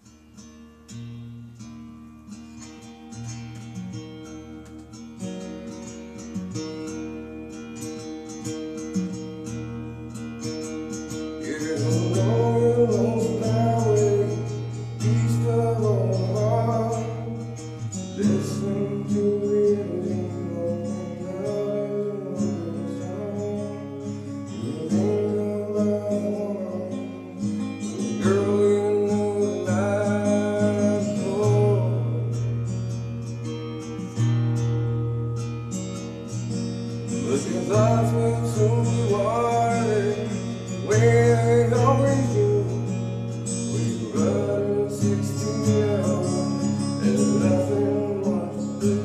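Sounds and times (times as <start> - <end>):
acoustic guitar strummed: 0.0 - 49.0
man singing with vocal effect: 11.4 - 32.5, 37.1 - 49.0.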